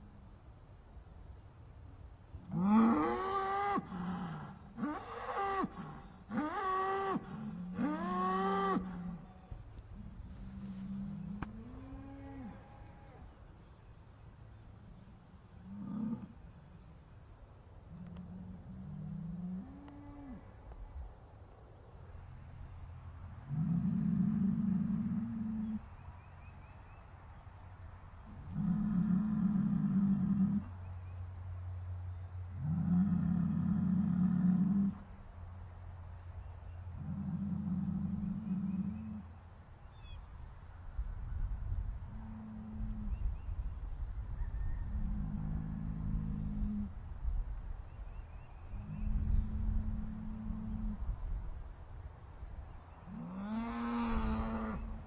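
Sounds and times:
cows mooing: 53.2s - 55.0s.

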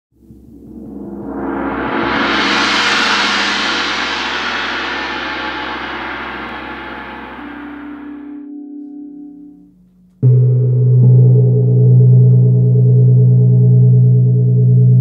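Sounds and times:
gong ringing: 0.2s - 13.2s
low humming tones: 0.2s - 15.0s.

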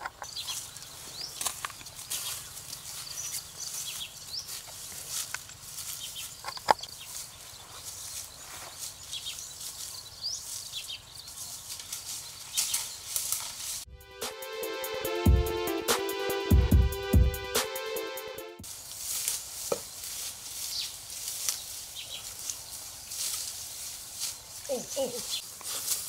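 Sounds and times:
small birds chirping: 0.0s - 13.8s, 19.8s - 26.0s
footsteps through dry undergrowth: 0.0s - 13.9s, 18.6s - 26.0s.

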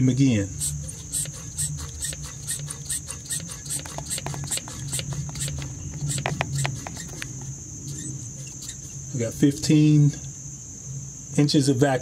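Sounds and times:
hand vacuum pump clicks: 0.9s - 7.5s.

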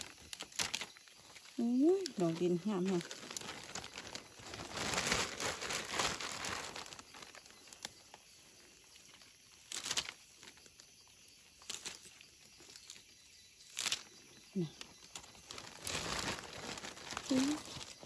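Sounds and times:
dry leaves rustling: 0.0s - 18.0s.

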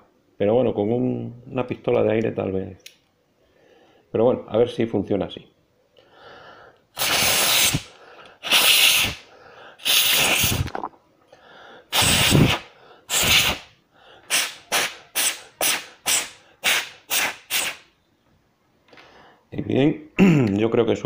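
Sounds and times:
mouth blowing into controller: 7.0s - 9.2s, 9.8s - 10.9s, 11.9s - 13.6s
short quick puffs of breath: 11.3s - 17.8s.

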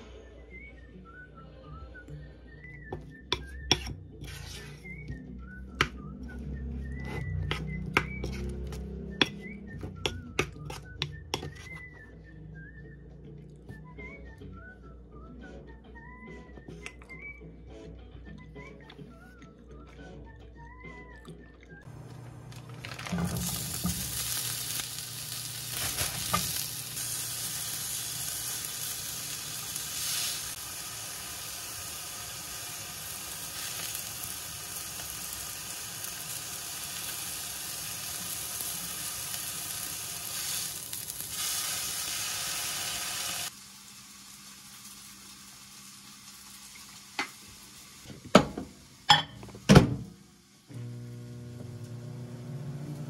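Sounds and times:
food sizzling in a frying pan: 22.4s - 49.1s.

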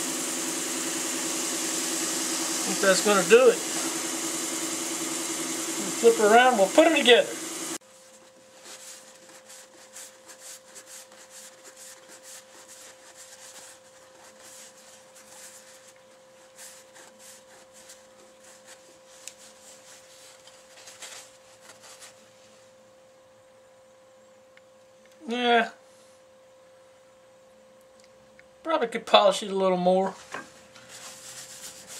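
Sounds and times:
scuffing rub strokes on wood: 2.4s - 22.7s, 30.2s - 31.9s
faint hum: 2.4s - 31.9s.

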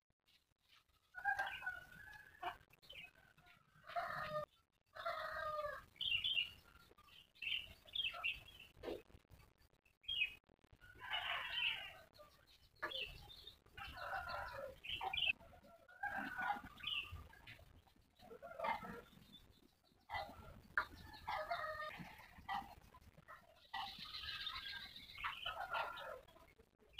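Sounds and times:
chickens clucking: 7.7s - 9.4s, 10.9s - 26.9s.

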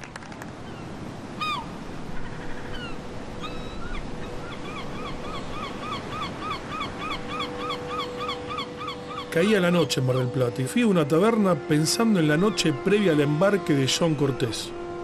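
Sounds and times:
surf washing on shore: 0.0s - 15.0s
gull yelping: 4.7s - 9.4s.

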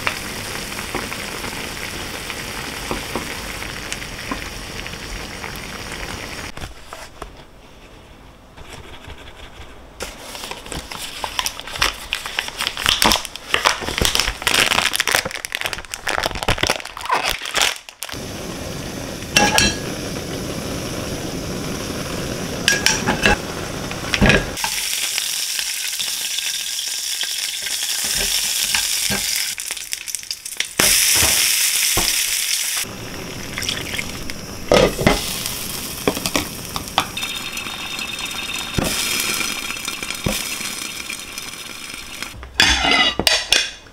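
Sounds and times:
food sizzling in a pan: 0.0s - 6.6s, 18.0s - 43.2s.

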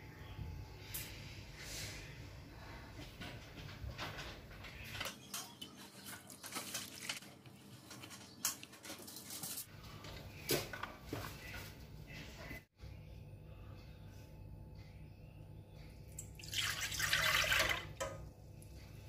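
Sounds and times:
tea pouring into cup: 16.3s - 17.8s.

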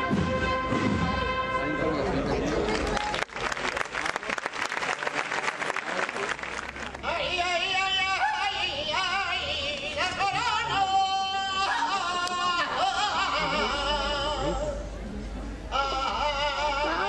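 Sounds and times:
crowd noise: 0.0s - 17.0s
man singing solo: 7.0s - 14.9s.

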